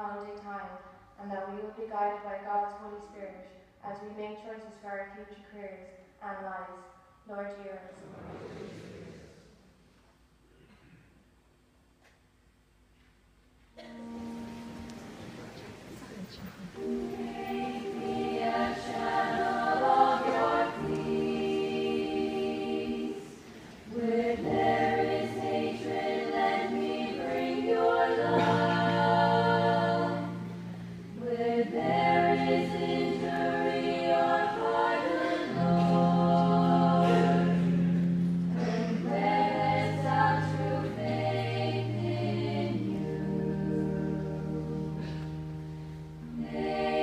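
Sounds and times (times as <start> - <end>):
choir singing a hymn: 8.0 - 9.6, 13.8 - 47.0.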